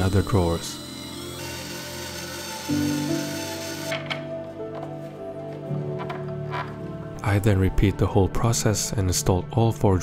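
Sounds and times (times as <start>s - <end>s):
cordless drill driving a screw: 0.0s - 4.2s
background music with low notes: 0.0s - 10.0s.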